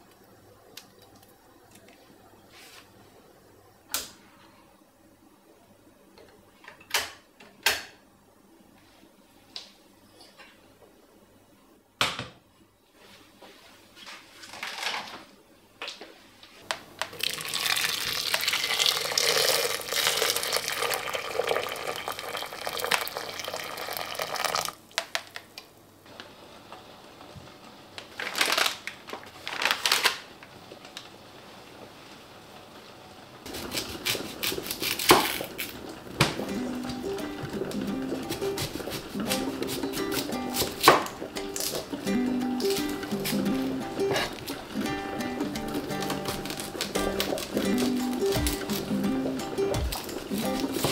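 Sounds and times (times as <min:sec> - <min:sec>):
water pouring into a pot: 0:17.1 - 0:24.8.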